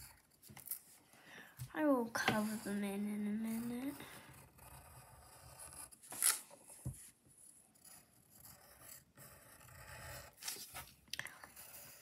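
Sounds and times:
pencil scratching on paper: 0.0 - 1.0, 1.9 - 12.0.

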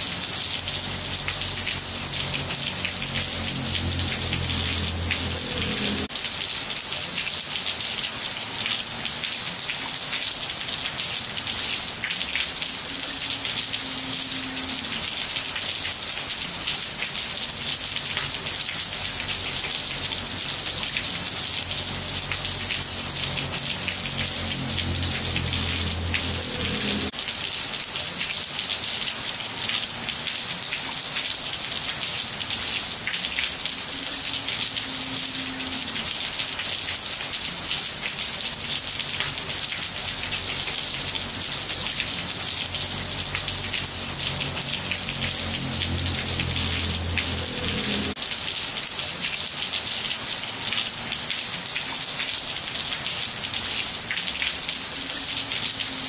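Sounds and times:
rain on tiles: 0.0 - 56.0.

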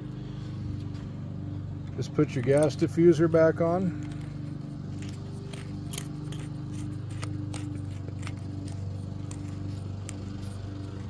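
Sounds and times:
steady low hum: 0.0 - 11.0
metal clicks and scrapes: 3.9 - 11.0.

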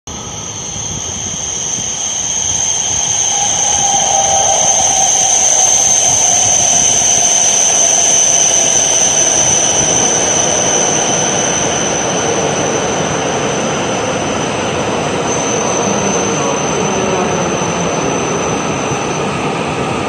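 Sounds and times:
train motor whine: 0.2 - 10.6
train rushing noise: 1.8 - 8.4.

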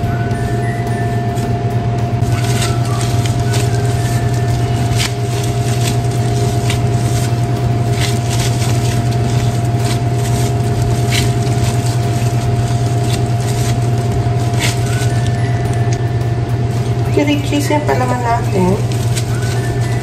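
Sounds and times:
low machine hum: 0.0 - 20.0
thin whine: 0.0 - 20.0.

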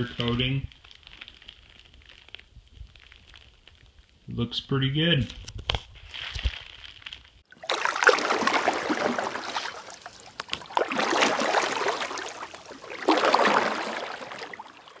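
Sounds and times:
water swishing and splashing: 6.0 - 15.0.

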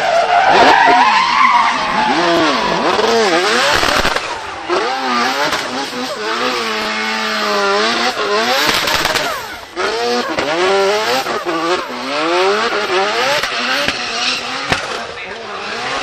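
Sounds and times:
rotary engine revving: 0.0 - 16.0
sharp crack: 2.9 - 4.6, 8.6 - 9.6, 14.6 - 15.1.

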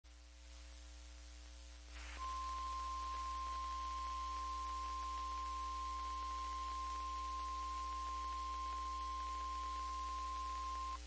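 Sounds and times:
faint static: 0.0 - 11.0
low receiver hum: 0.1 - 11.0
high-pitched alarm tone: 2.2 - 11.0.

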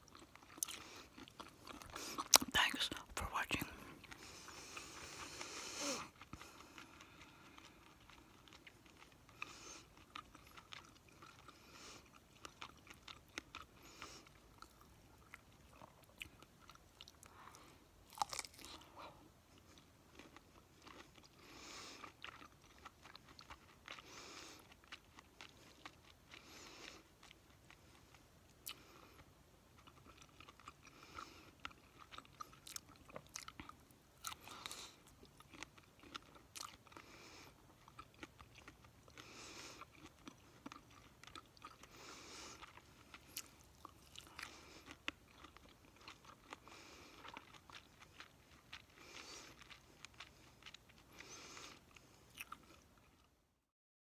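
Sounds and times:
person chewing and crunching food: 0.0 - 53.7.

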